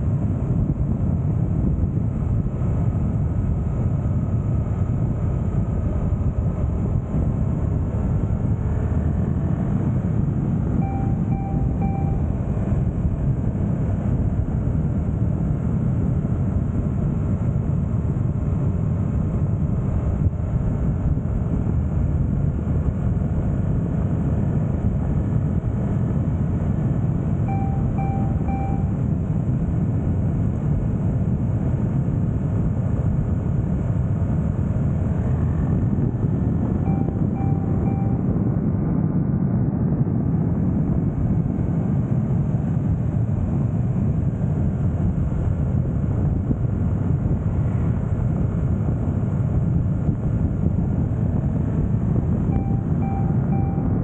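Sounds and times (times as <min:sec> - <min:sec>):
wind and road noise: 0:00.0 - 0:54.0
short electronic beeps: 0:10.7 - 0:12.9, 0:27.4 - 0:29.2, 0:36.7 - 0:38.6, 0:52.4 - 0:54.0.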